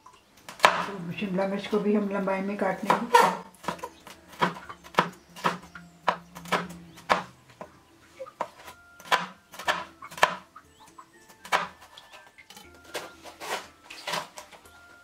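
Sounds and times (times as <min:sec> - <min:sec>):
knife tapping on cutting board: 0:03.6 - 0:07.3.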